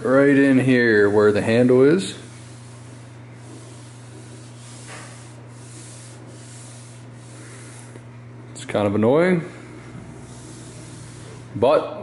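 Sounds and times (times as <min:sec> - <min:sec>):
low steady hum: 0:00.0 - 0:12.0
hand rubbing steel panel: 0:00.7 - 0:08.0, 0:10.0 - 0:11.6.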